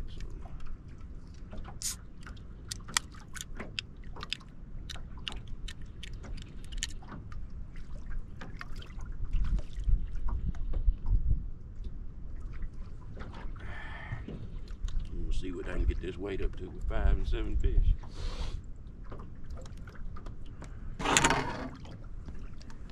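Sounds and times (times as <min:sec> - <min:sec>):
water lapping against boat hull: 0:00.0 - 0:22.9.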